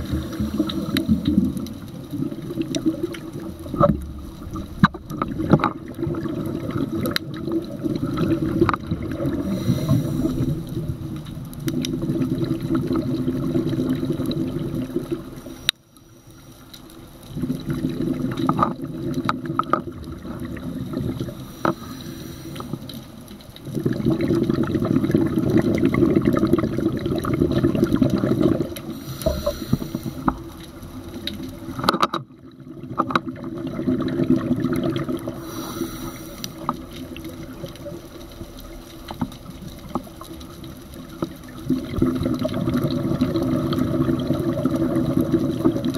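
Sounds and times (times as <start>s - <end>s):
underwater exhaust bubbles: 0.0s - 45.9s.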